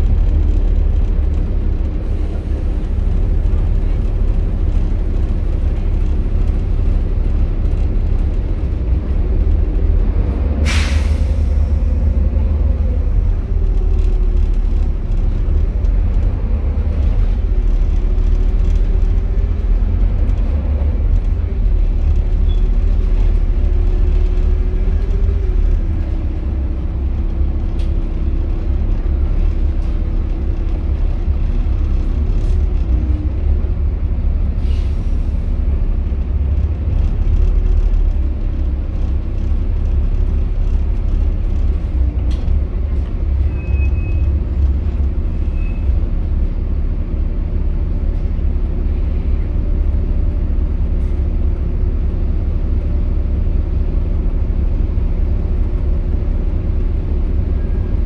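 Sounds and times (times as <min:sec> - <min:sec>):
bus diesel engine rumbling: 0:00.0 - 0:58.0
air brake hiss: 0:10.6 - 0:11.6, 0:34.6 - 0:35.4.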